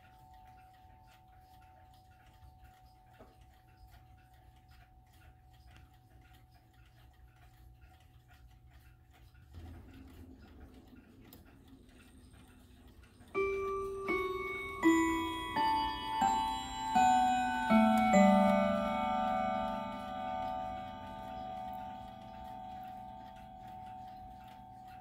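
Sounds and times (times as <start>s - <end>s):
clock chime rods ringing: 0.0s - 5.7s, 13.1s - 25.0s
clock ticking: 0.0s - 25.0s.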